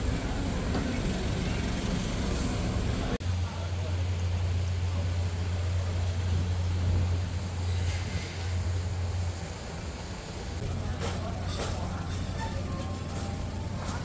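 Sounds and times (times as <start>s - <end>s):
passing traffic: 0.0s - 3.4s
faint street noise: 0.0s - 14.0s.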